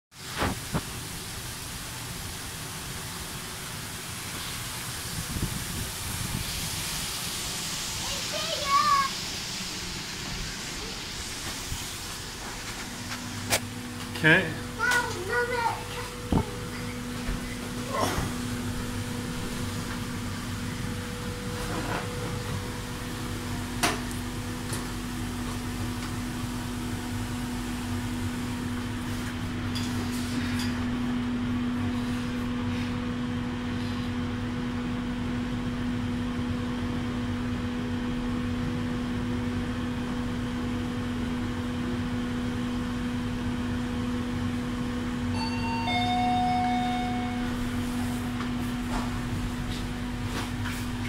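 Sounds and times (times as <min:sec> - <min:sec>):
elevator humming: 0:07.1 - 0:29.7, 0:34.4 - 0:51.0
two-note electronic chime: 0:45.3 - 0:48.4.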